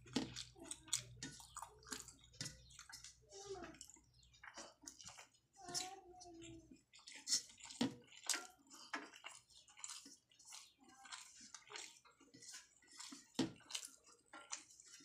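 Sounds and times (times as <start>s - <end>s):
wet chewing and lip smacks: 0.0s - 3.2s, 6.7s - 15.0s
fingers squishing food on steel plate: 0.0s - 15.0s.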